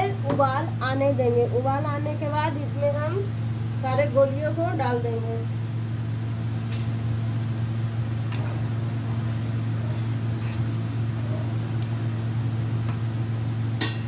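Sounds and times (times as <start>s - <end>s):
low machine hum: 0.0s - 14.0s.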